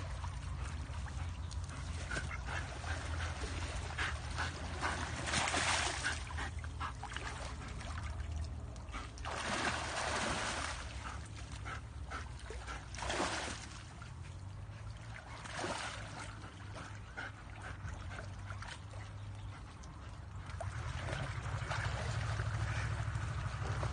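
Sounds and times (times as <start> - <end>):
steady low rumble: 0.0 - 10.2, 16.3 - 23.9
splashing in muddy water: 0.0 - 23.9.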